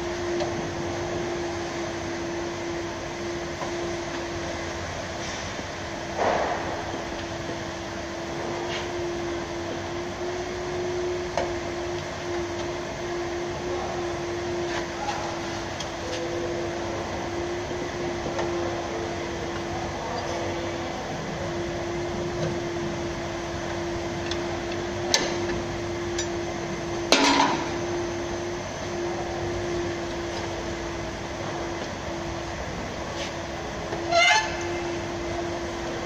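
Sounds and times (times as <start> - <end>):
machine hum: 0.0 - 36.0
metal clank: 27.1 - 27.7.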